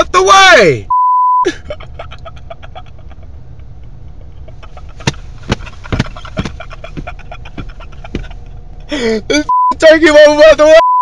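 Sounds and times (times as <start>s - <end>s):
censor bleep: 0.9s - 1.5s, 9.5s - 9.8s, 10.8s - 11.0s
car engine idling: 1.5s - 10.7s
sharp knocks: 5.0s - 8.4s.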